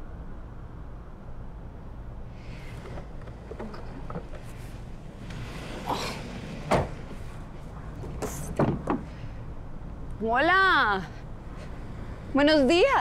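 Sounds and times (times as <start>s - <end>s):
steady low hum: 0.0s - 13.0s
light knocks and clatters: 7.9s - 9.2s.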